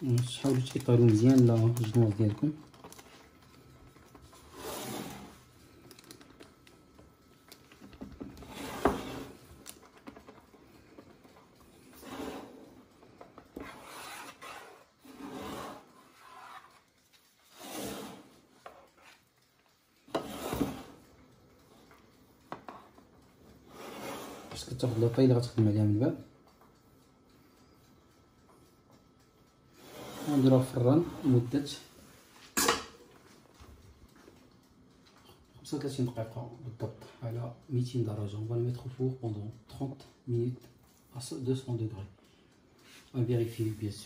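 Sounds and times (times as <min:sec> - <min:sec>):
spatula scraping batter in tin: 0:13.6 - 0:16.8.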